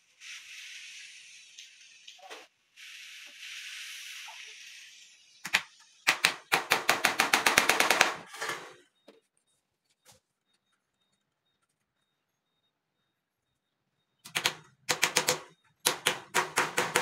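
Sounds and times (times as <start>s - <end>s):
steady hiss: 0.0s - 6.2s
hammer striking wooden frame: 14.3s - 17.0s.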